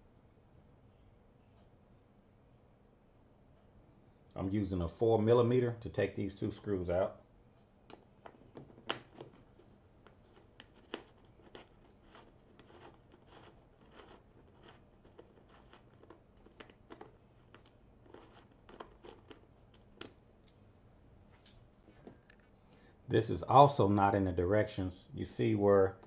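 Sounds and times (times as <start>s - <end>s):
fingers handling screws: 7.9s - 20.2s
hex key turning screws: 10.3s - 19.5s.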